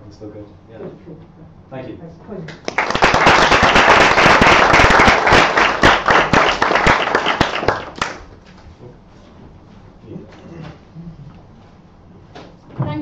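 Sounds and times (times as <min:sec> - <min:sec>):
audience applauding: 0:02.6 - 0:08.3.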